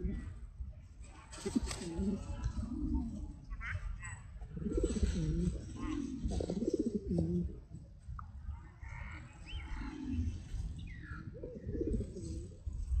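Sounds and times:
pigeons cooing: 0.0s - 0.4s, 4.5s - 7.8s, 9.6s - 12.6s.

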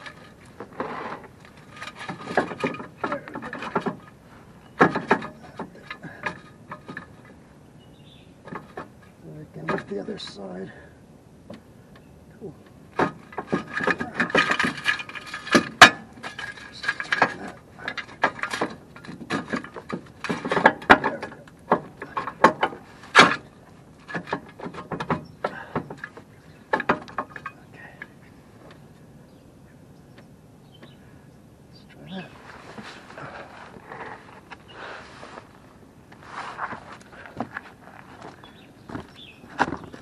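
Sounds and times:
metal jack stand clicks and clanks: 0.0s - 7.4s, 13.0s - 27.6s.

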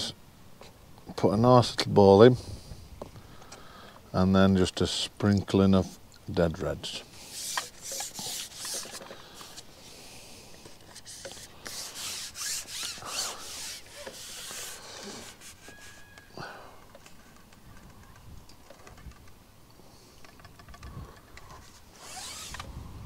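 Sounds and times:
hands rubbing damp bait: 7.2s - 16.2s.

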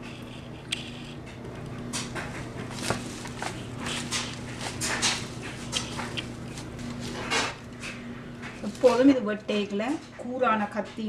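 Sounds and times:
wet leaves rustling in plastic bowl: 2.7s - 7.3s, 8.5s - 9.7s.

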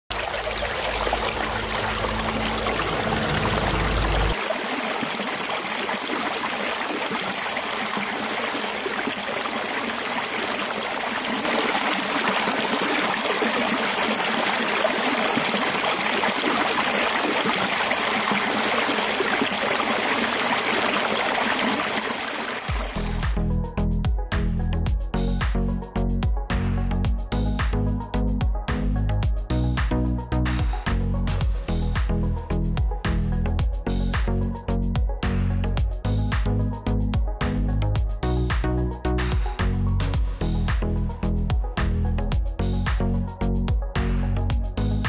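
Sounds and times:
water rushing down a channel: 0.1s - 23.4s.

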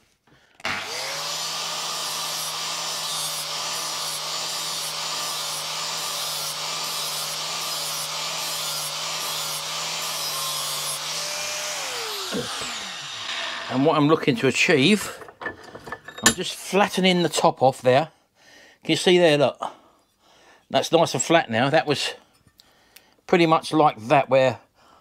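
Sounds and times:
angle grinder grinding steel: 0.6s - 16.4s.

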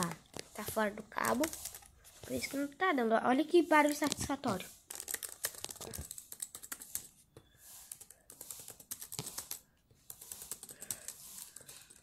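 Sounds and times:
laptop keyboard clicking: 4.9s - 7.1s, 7.8s - 12.0s.

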